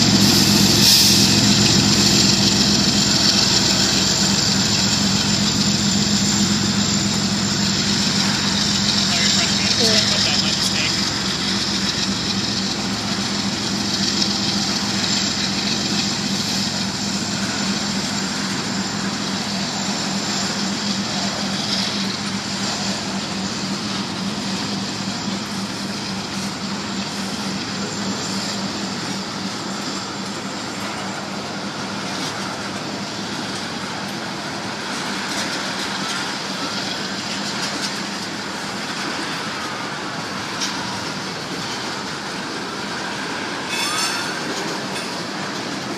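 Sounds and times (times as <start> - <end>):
locomotive diesel drone: 0.0 - 45.9
train wheels rumbling on rail: 0.0 - 45.9.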